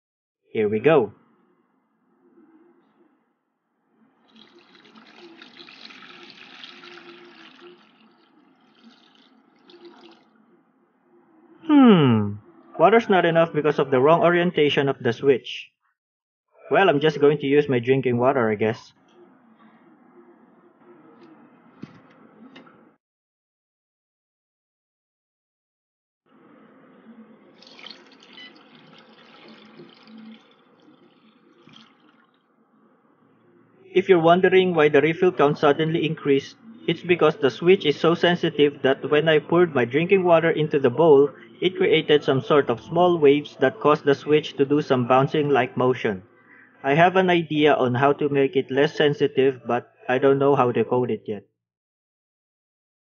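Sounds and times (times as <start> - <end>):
water pouring and splashing: 4.3 - 10.3, 27.6 - 32.4.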